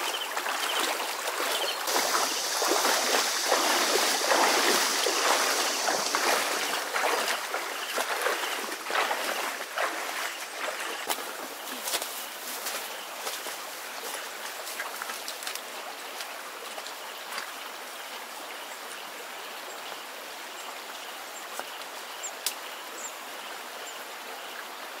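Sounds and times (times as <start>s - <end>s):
flood water rushing: 0.0s - 15.8s
footsteps through grass: 1.4s - 15.4s.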